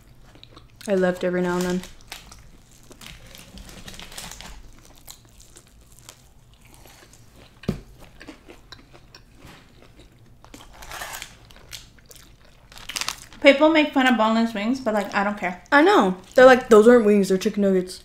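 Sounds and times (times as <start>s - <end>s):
chewing crunchy food: 0.0s - 13.4s.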